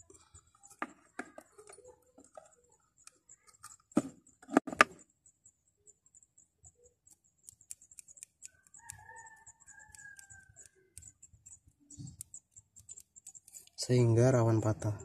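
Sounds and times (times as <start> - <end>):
rooster crowing: 8.5 - 10.8.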